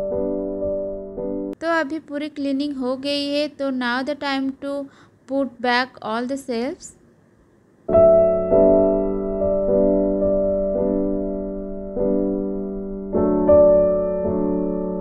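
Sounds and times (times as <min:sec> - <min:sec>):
soft piano music: 0:00.0 - 0:01.6, 0:07.9 - 0:15.0.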